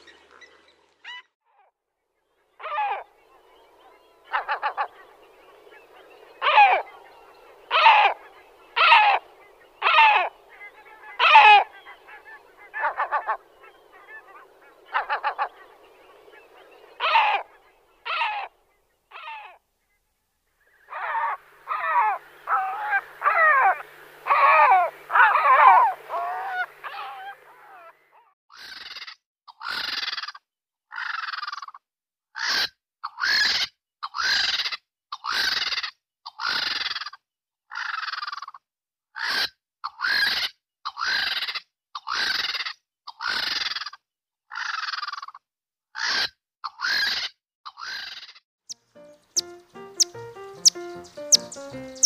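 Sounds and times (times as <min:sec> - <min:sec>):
gull calls: 0:02.6 - 0:03.1, 0:03.8 - 0:18.5, 0:20.9 - 0:29.0.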